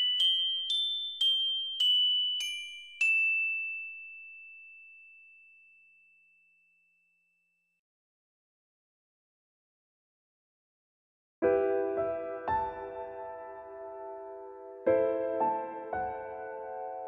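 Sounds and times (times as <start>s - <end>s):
music box melody: 0.0s - 6.9s.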